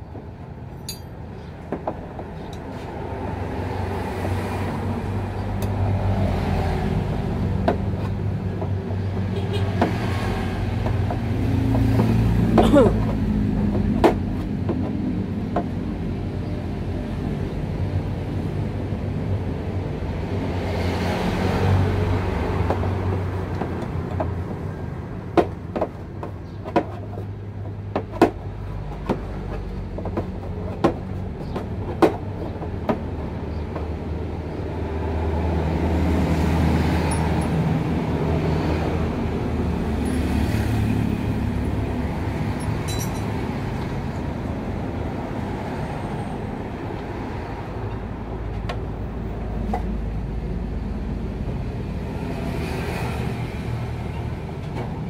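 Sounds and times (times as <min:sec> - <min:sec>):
metallic tool clicks: 0:00.8 - 0:01.1.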